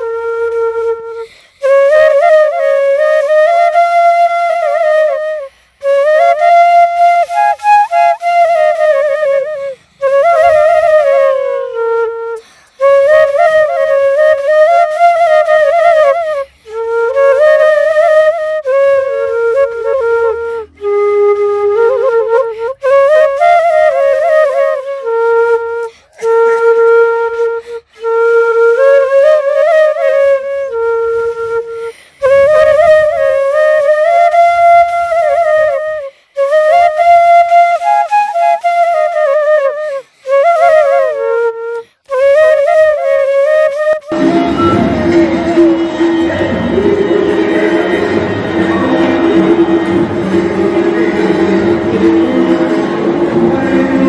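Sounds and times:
solo flute melody: 0.0 - 54.0
player breathing: 1.2 - 1.6, 12.4 - 12.8, 31.8 - 32.2.

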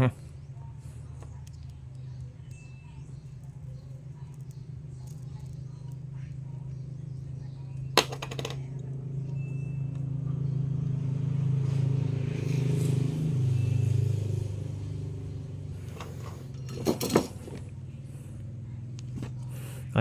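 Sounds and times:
low motor hum: 0.0 - 20.0.

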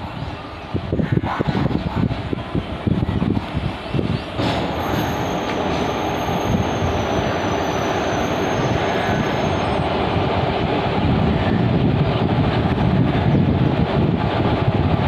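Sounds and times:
train wheels rumbling on rails: 0.0 - 15.0
wind buffeting microphone: 0.0 - 15.0
high wheel squeals: 3.9 - 10.1.

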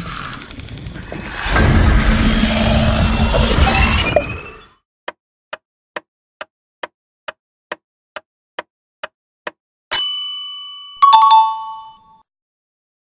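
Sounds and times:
bright bell ding: 9.9 - 12.2
low two-note chime: 10.0 - 12.2.

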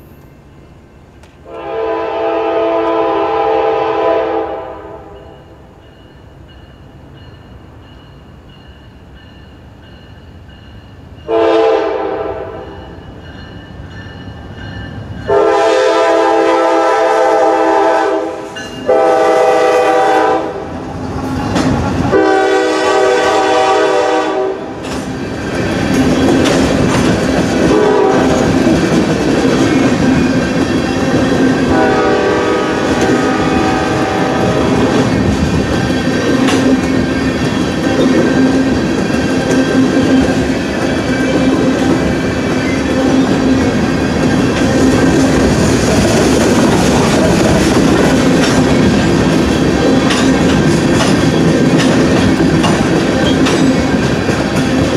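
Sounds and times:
train rumble: 0.0 - 54.9
locomotive air horn blasts: 1.5 - 5.2, 11.3 - 12.8, 15.3 - 20.7, 22.1 - 24.8, 27.7 - 28.4, 31.7 - 35.0
wheel clatter over rail joints: 24.8 - 31.6, 34.9 - 54.9.

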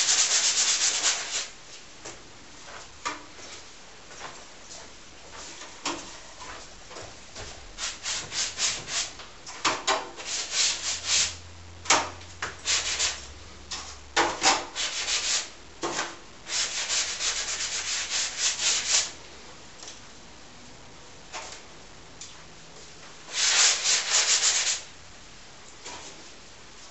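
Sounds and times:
block rubbing on canvas: 7.8 - 9.2.

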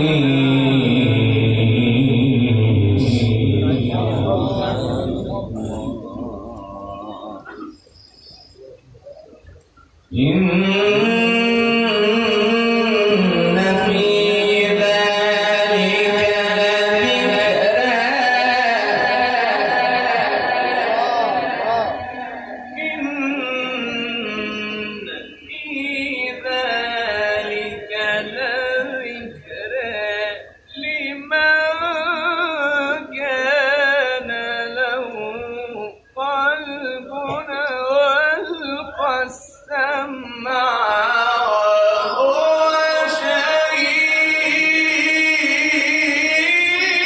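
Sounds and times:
man reciting in melodic chant: 0.0 - 47.0.

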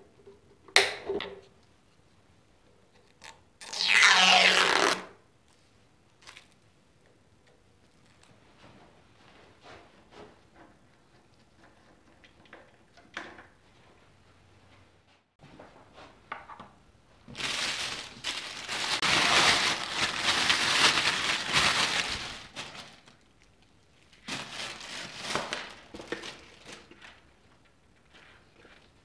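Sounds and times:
plastic bag crinkling: 17.3 - 27.4.

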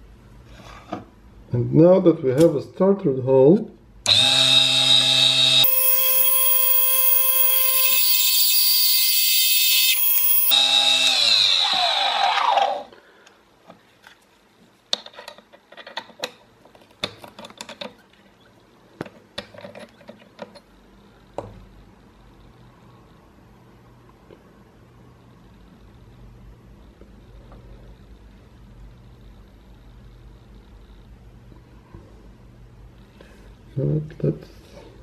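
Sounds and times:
lathe motor whining: 4.1 - 11.3.

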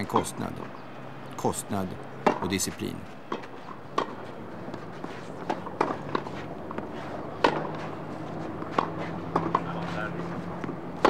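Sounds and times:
tennis ball pocks: 3.3 - 10.0.

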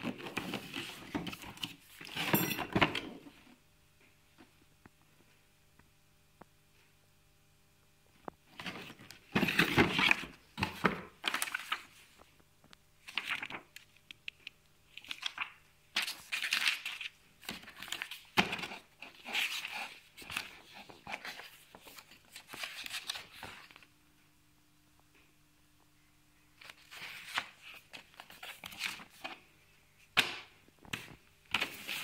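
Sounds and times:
pages turning: 0.0 - 2.4, 8.5 - 12.4, 13.0 - 23.9, 26.6 - 29.5, 30.8 - 32.0
paper rustling: 0.0 - 2.4, 8.5 - 12.4, 13.0 - 14.1, 14.9 - 23.9, 26.6 - 29.5, 30.8 - 32.0.

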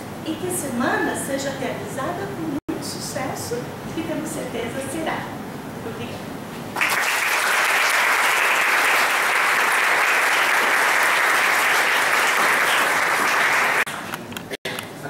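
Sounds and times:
audience applauding: 6.8 - 14.1.

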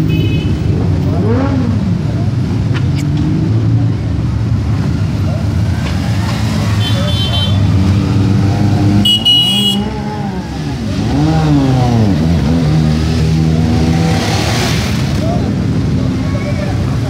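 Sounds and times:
motorcycles revving past: 4.7 - 17.0.

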